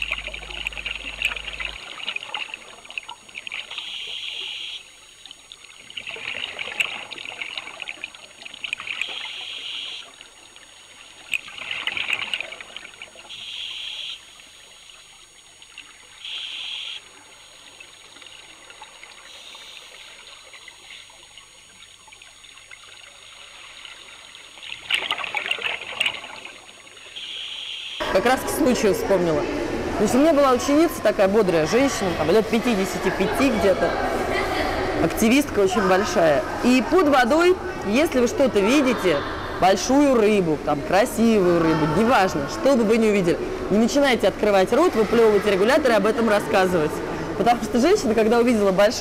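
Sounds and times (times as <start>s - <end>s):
bubbling exhaust: 0.0s - 4.0s.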